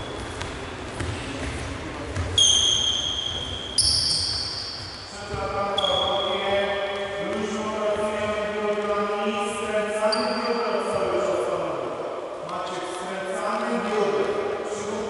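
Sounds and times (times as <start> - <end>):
sneakers squeaking on wooden floor: 0.0 - 8.4, 10.0 - 11.2
ball bouncing: 0.1 - 2.4.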